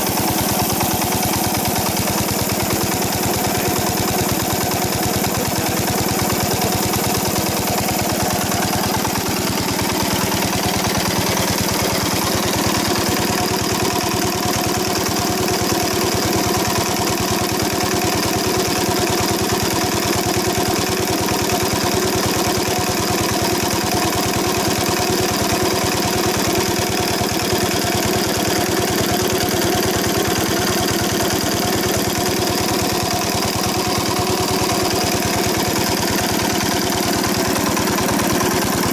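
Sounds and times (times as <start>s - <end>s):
diesel engine running: 0.0s - 15.4s, 28.4s - 38.9s.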